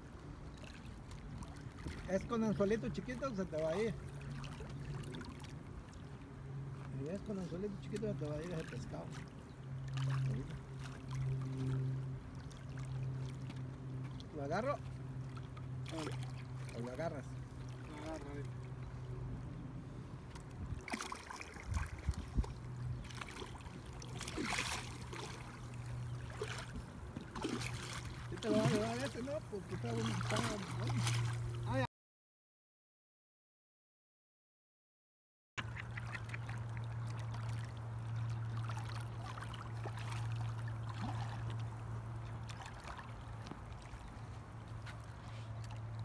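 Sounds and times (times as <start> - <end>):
low steady hum: 0.0 - 31.9, 35.6 - 46.0
fish splashing in water: 8.6 - 14.3, 20.4 - 31.7, 35.6 - 46.0.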